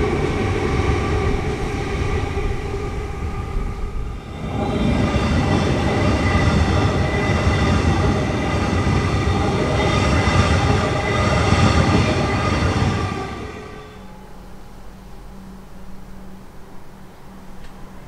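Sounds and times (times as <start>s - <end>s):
electric train passing: 0.0s - 18.0s.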